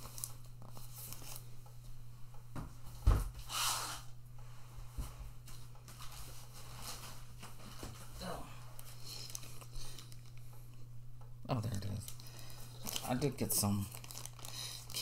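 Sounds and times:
rustle of packaging: 8.8 - 10.4, 12.0 - 15.0.

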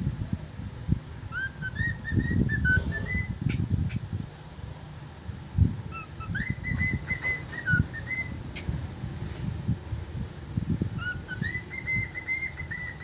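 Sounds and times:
cockatiel whistling a tune: 1.3 - 3.3, 5.9 - 8.4, 11.0 - 13.0.

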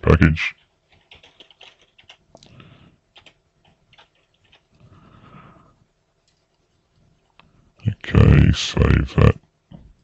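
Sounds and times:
faint keyboard keystrokes: 0.6 - 4.9, 6.2 - 7.5.

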